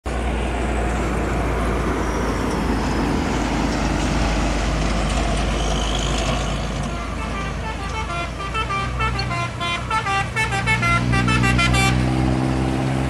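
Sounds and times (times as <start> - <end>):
truck engine and tyre noise: 0.0 - 13.0.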